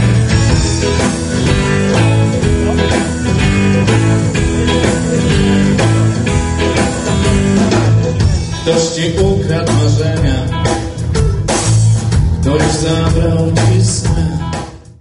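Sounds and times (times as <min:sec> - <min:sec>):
drum kit steady beat: 0:00.0 - 0:14.9
electric guitar: 0:00.0 - 0:14.9
bass guitar: 0:00.0 - 0:15.0.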